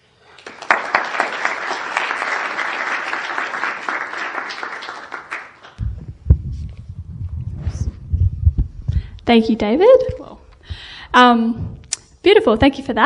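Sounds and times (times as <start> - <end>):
audience applauding: 0.3 - 5.8
low rumbling thumps: 5.8 - 11.9.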